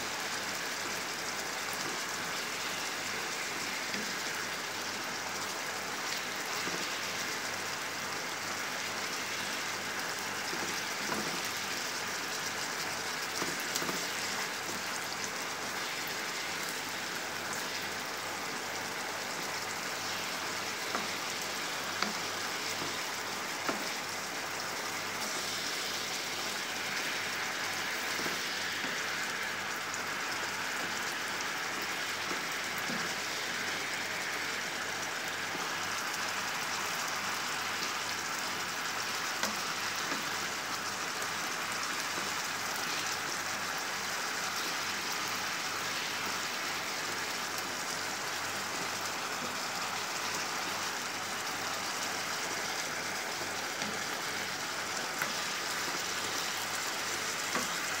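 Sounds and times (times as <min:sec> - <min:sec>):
chicken sizzling in frying pan: 0:00.0 - 0:58.0.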